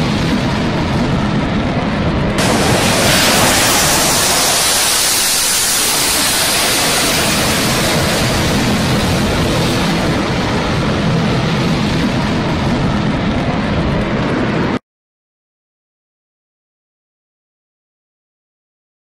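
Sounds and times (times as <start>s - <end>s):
jet engines roaring: 0.0s - 14.8s.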